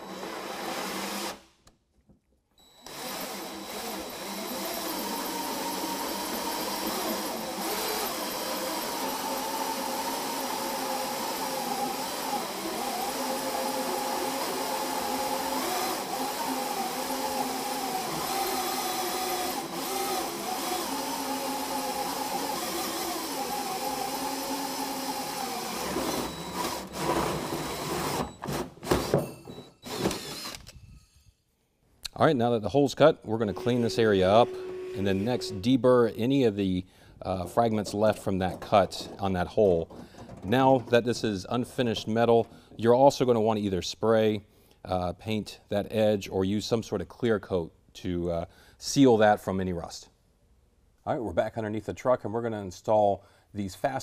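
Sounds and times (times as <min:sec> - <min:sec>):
drill hole saw cutting metal: 0:00.0 - 0:01.4, 0:02.8 - 0:28.5, 0:29.8 - 0:30.7, 0:33.4 - 0:35.7.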